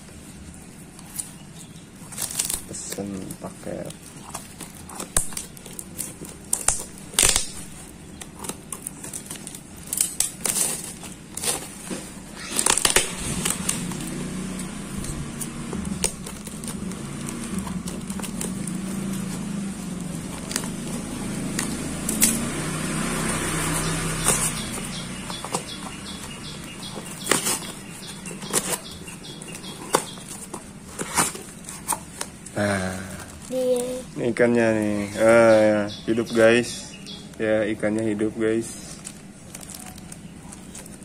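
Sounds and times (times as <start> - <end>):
plastic wrapping and tape tearing: 0.0 - 35.0, 37.8 - 41.0
scissors snipping: 12.4 - 22.7.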